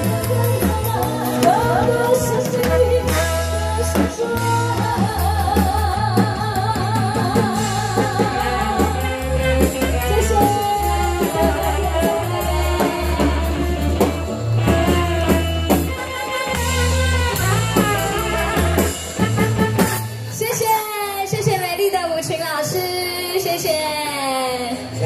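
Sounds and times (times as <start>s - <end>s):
woman singing into a microphone: 0.0s - 16.0s
band with drums and saxophone: 0.0s - 25.0s.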